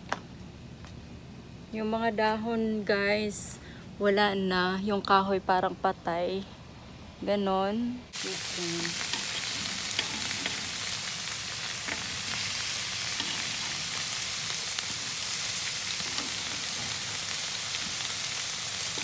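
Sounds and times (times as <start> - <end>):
chicken sizzling on grill: 8.1 - 19.0.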